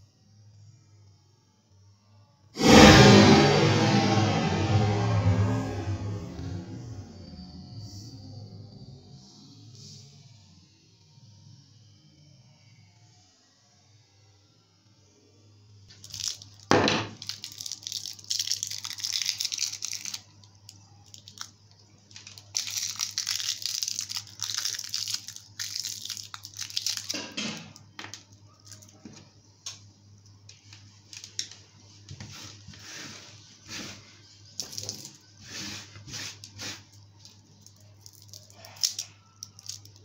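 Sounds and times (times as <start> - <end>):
foil wrapper crinkling: 15.9 - 21.5, 22.1 - 27.4, 28.1 - 29.0, 34.6 - 35.2, 37.2 - 40.0.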